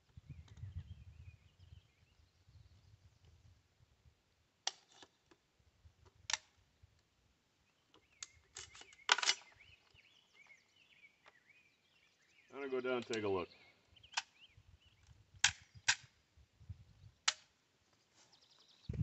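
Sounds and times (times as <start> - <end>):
birds chirping faintly: 0.0 - 3.7, 7.0 - 19.0
rifle clicks and clatters: 8.0 - 9.6.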